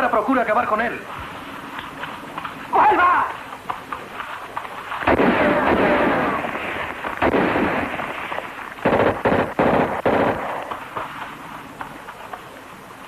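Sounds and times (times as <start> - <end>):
gunshots with ringing tails: 5.0 - 11.1.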